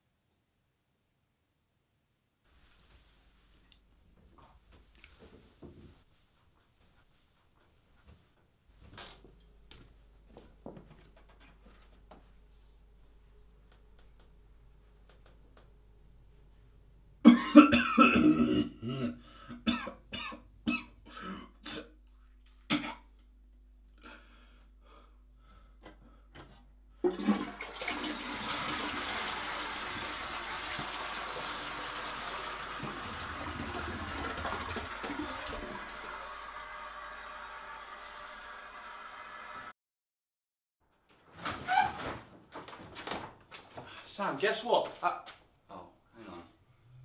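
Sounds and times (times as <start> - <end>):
person coughing: 17.2 - 22.0, 22.7 - 23.1
toilet flushing: 27.0 - 39.7.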